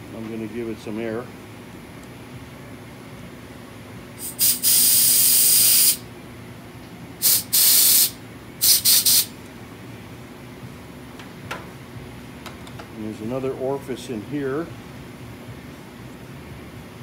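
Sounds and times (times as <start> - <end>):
compressed air blow gun hissing: 4.2 - 6.0, 7.2 - 9.3.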